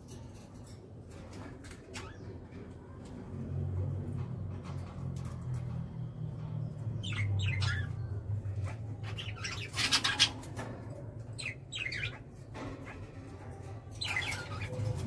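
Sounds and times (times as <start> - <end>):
parakeets chirping and squawking: 0.0 - 15.0.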